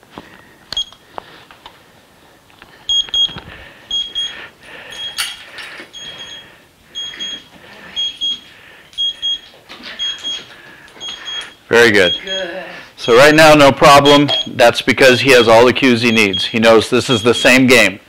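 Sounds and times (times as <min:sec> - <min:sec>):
digital timer alarm beeping: 0:02.9 - 0:05.2, 0:05.9 - 0:14.6, 0:15.2 - 0:17.9.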